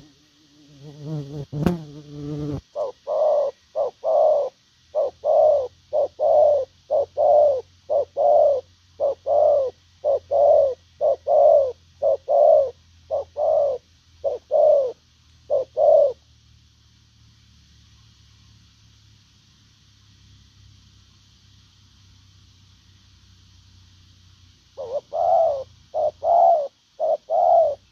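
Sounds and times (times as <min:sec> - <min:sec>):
dove cooing: 0:02.6 - 0:16.2, 0:24.8 - 0:27.9.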